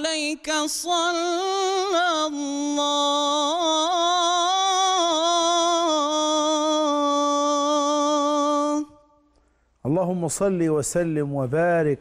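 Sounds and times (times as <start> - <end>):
man singing devotional chant: 0.0 - 9.0.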